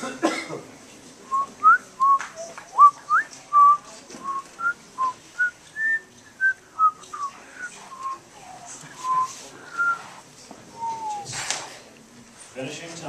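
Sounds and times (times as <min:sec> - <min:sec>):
person whistling a tune: 0:09.0 - 0:10.0, 0:10.8 - 0:11.3.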